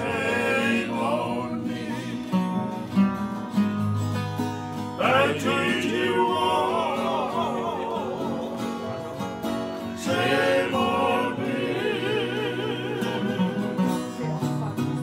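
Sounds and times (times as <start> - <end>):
men singing together: 0.0 - 2.9, 5.0 - 14.1
strummed acoustic guitar: 0.0 - 15.0
ukulele: 0.0 - 15.0.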